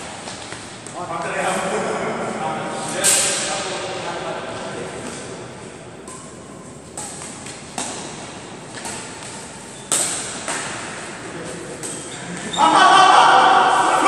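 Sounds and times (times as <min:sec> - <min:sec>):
rackets hitting shuttlecock: 0:03.0 - 0:03.8, 0:05.0 - 0:12.5.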